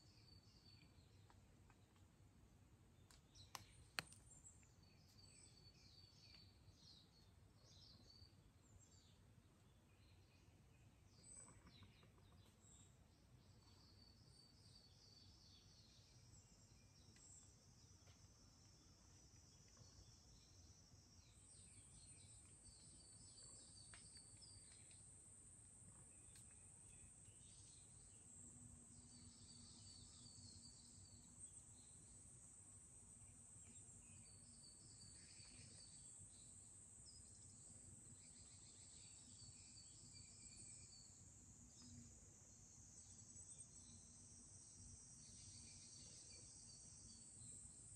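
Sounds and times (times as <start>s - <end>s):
small bird chirping: 3.0s - 25.1s, 33.2s - 47.9s.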